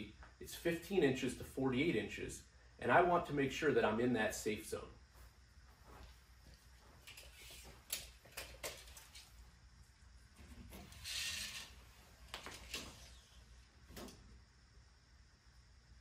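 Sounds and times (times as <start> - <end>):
tape measure blade sliding: 10.9 - 11.8.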